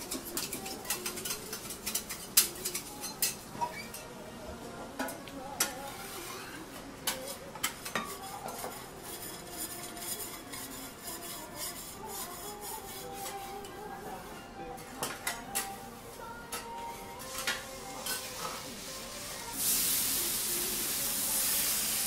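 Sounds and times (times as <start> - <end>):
metal spatula scraping griddle: 0.0 - 4.0, 5.6 - 15.8, 16.6 - 19.0
light sizzle: 17.2 - 22.0.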